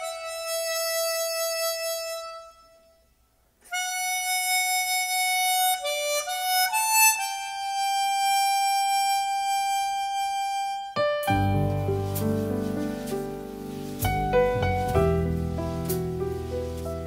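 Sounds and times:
solo saxophone melody: 0:00.0 - 0:03.1, 0:03.7 - 0:12.2.

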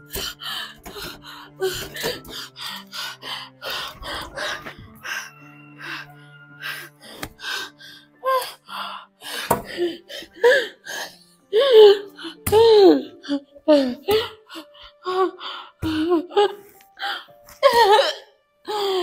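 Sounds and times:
background music with low note: 0:00.0 - 0:19.0
woman moaning: 0:11.5 - 0:19.0.

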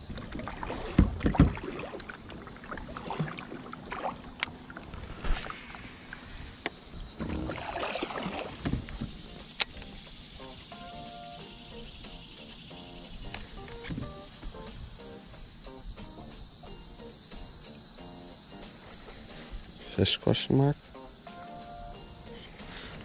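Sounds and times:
paddle splashing in water: 0:00.0 - 0:06.5, 0:07.1 - 0:09.3
kayak thumps and knocks: 0:00.1 - 0:04.5, 0:06.6 - 0:09.8, 0:13.4 - 0:14.5.

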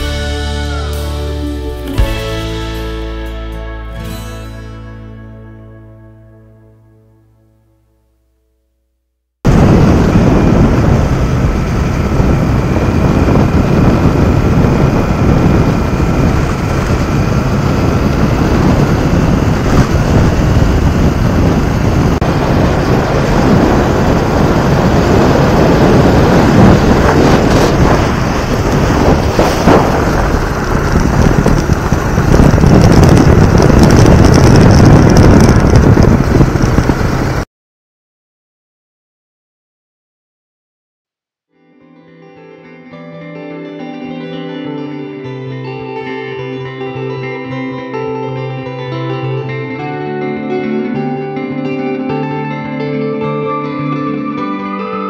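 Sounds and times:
wind buffeting microphone: 0:09.5 - 0:37.4
motorcycle engine: 0:09.5 - 0:37.5.

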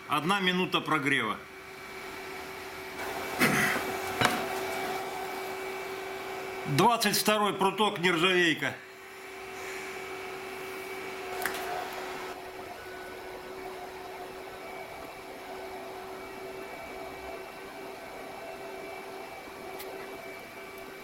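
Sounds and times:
induction heater hum and whine: 0:00.0 - 0:21.0.

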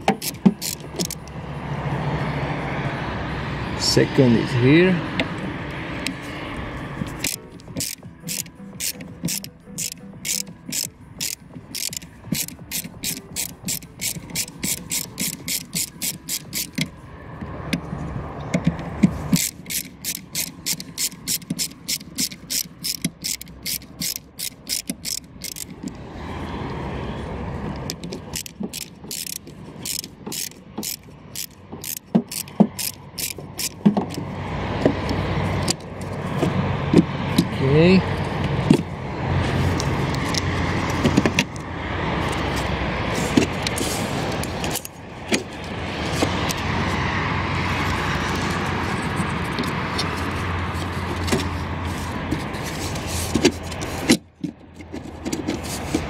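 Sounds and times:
ratchet wrench clicking: 0:00.0 - 0:01.4, 0:07.0 - 0:17.0, 0:18.6 - 0:26.0, 0:27.7 - 0:34.3, 0:35.0 - 0:36.2, 0:43.6 - 0:45.0.

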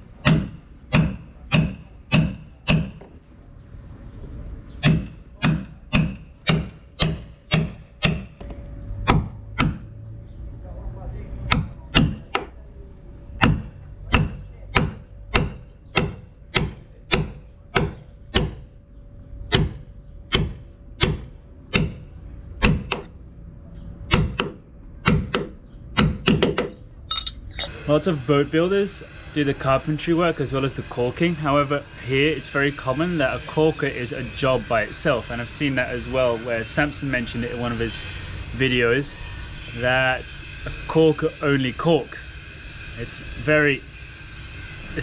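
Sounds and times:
faint steady hum: 0:00.0 - 0:45.0
hammer tapping steel caulking iron: 0:00.2 - 0:03.1, 0:04.8 - 0:08.4, 0:09.1 - 0:09.9, 0:11.5 - 0:12.5, 0:13.4 - 0:18.6, 0:19.5 - 0:23.1, 0:24.1 - 0:27.3.

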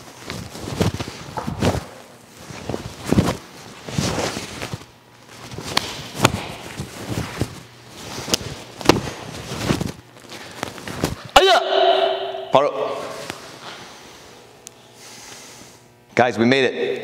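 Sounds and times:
bare feet on foam mats: 0:00.0 - 0:11.3.

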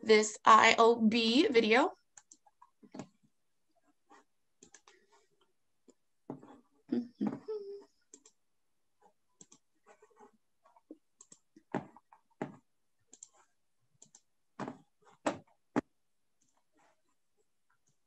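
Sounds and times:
keyboard typing: 0:02.1 - 0:03.2, 0:04.1 - 0:05.0, 0:08.1 - 0:08.4, 0:09.4 - 0:16.6.

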